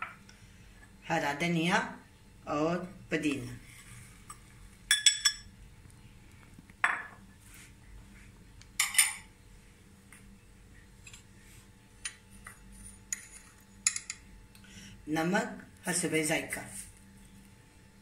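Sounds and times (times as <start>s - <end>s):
glass bowls and spoon clinking: 4.3s - 5.5s, 8.8s - 9.3s, 12.0s - 14.2s.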